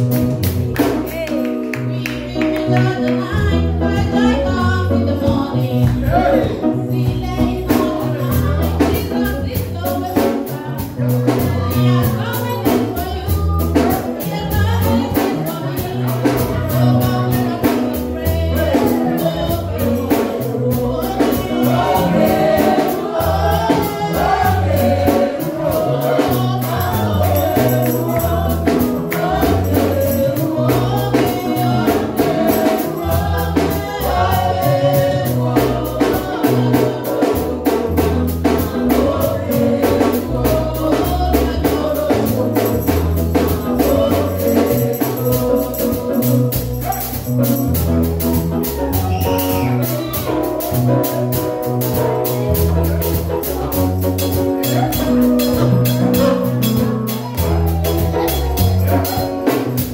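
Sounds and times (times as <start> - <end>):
bass line: 0.0 - 59.9
choir singing: 5.4 - 6.9, 18.6 - 47.2
tambourine: 13.8 - 36.2, 41.3 - 59.9
drum beat: 19.8 - 59.9.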